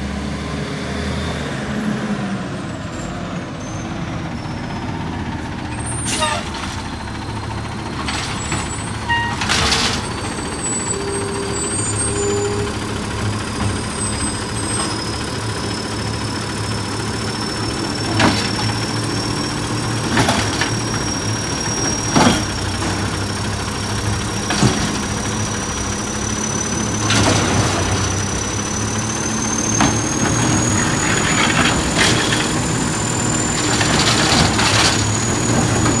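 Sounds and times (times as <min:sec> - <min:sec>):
garbage truck engine hum: 0:00.0 - 0:36.0.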